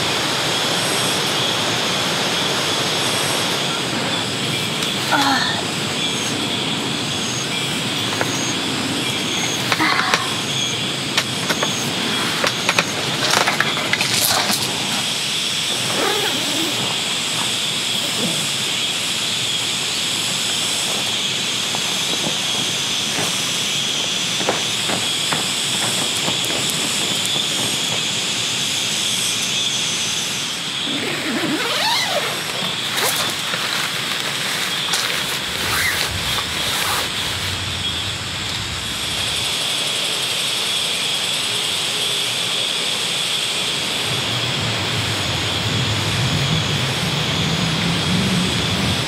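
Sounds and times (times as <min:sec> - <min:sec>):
tent fabric rustling: 0:12.1 - 0:28.6, 0:30.8 - 0:39.5
water hissing: 0:14.7 - 0:30.0, 0:30.6 - 0:40.2.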